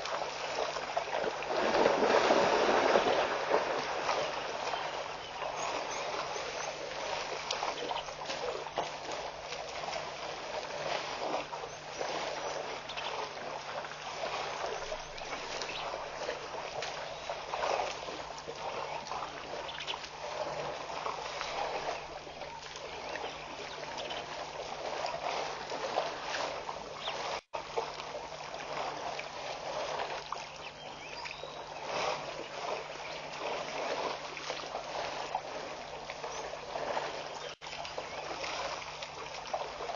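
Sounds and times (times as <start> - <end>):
water splashing and trickling: 0.0 - 39.9.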